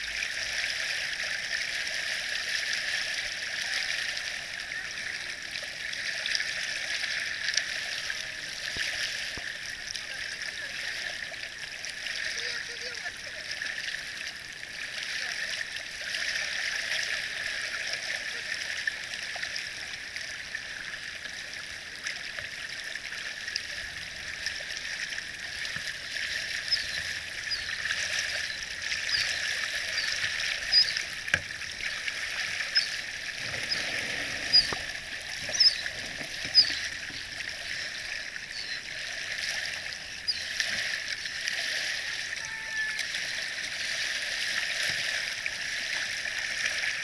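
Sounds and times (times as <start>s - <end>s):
sharp water splashes: 24.0s - 39.0s.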